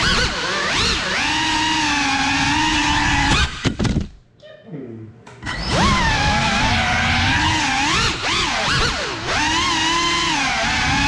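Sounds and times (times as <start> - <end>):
drone motors whining: 0.0 - 3.7, 5.4 - 11.0
sharp knocks: 3.3 - 4.2.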